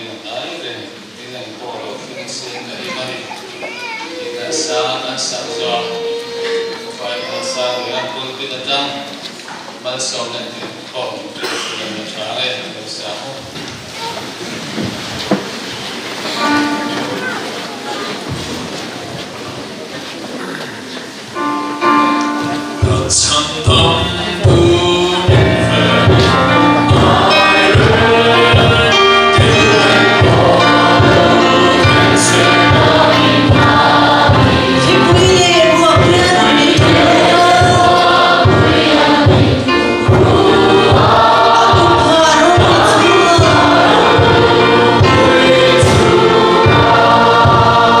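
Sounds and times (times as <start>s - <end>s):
many voices singing a hymn: 4.1s - 9.1s, 16.2s - 18.6s, 21.3s - 48.0s
steady drum beat: 22.8s - 48.0s.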